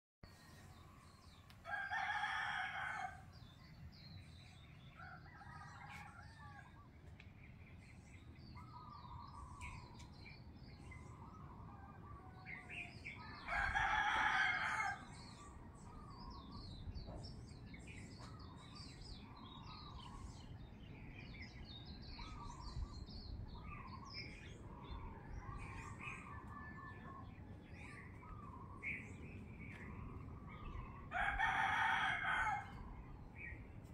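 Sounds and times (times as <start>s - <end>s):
small birds chirping: 0.2s - 33.9s
rooster crowing: 1.6s - 3.3s, 5.0s - 6.8s, 13.4s - 15.0s, 31.1s - 32.8s.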